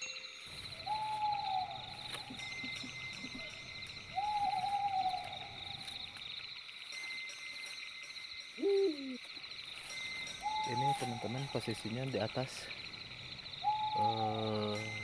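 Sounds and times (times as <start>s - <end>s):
night insects chorus: 0.0s - 15.0s
long falling hoot: 0.8s - 3.5s, 4.2s - 5.8s, 8.6s - 9.2s, 13.6s - 14.9s.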